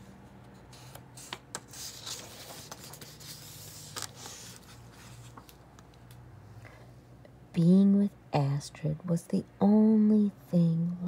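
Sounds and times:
book page rustling: 0:00.7 - 0:06.1.

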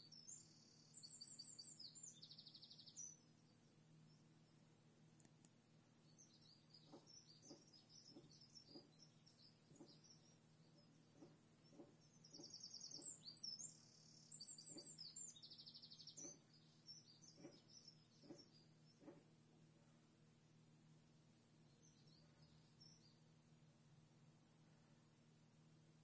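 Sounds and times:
songbird singing with trills: 0:00.0 - 0:04.7, 0:06.0 - 0:19.2, 0:21.6 - 0:23.4
steady low hum: 0:00.0 - 0:26.0
soft ticks: 0:05.2 - 0:05.6.

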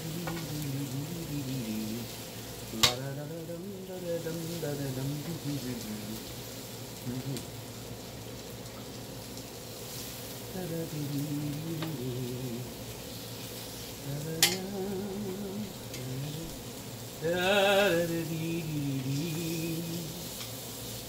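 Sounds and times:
chicken sizzling on a grill: 0:00.0 - 0:21.0
metal tongs clacking: 0:14.4 - 0:14.7.

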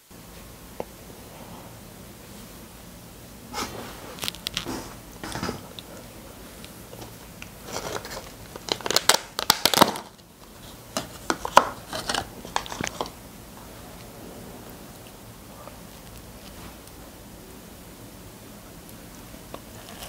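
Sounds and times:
packaging crinkling: 0:04.2 - 0:05.9, 0:06.6 - 0:13.2.

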